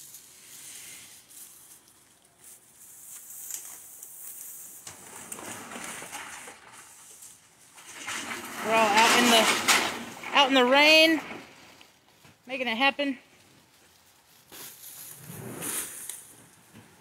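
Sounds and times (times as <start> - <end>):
light rain hissing: 0.0 - 7.8, 13.3 - 16.8.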